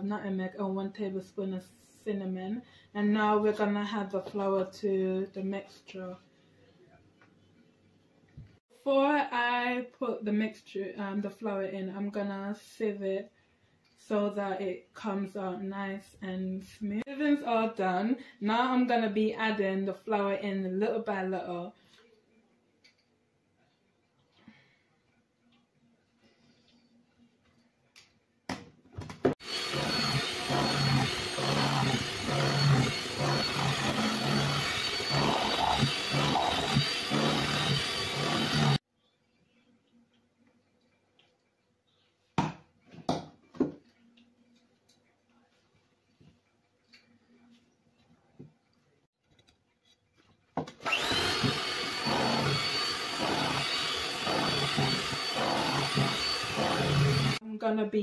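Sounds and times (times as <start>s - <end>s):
electric hand mixer churning batter: 29.4s - 38.8s, 50.8s - 57.4s.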